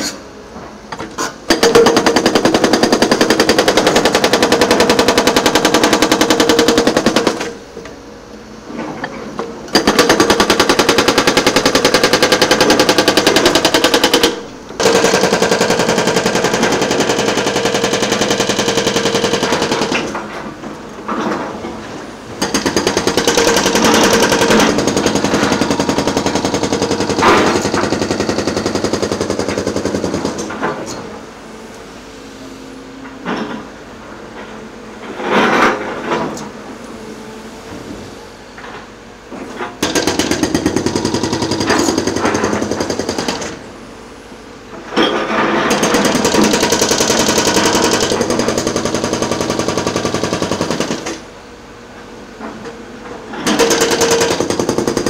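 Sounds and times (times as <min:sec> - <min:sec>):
hydraulic breaker hammering: 0:00.9 - 0:07.9, 0:09.7 - 0:20.4, 0:22.4 - 0:31.0, 0:39.8 - 0:43.7, 0:45.0 - 0:51.3, 0:53.3 - 0:55.0.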